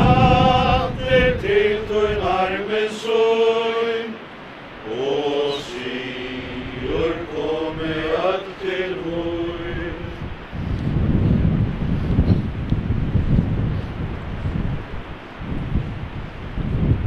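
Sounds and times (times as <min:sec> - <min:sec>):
group singing a hymn: 0:00.0 - 0:10.5.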